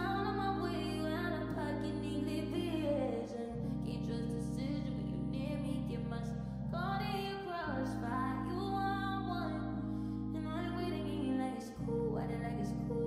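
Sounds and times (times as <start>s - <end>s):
song with singing: 0.0s - 9.7s.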